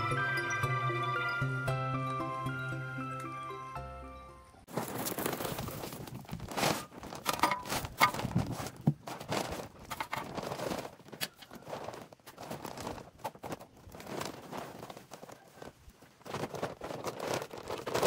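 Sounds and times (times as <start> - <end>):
dry leaves rustling and crunching: 4.7 - 18.0.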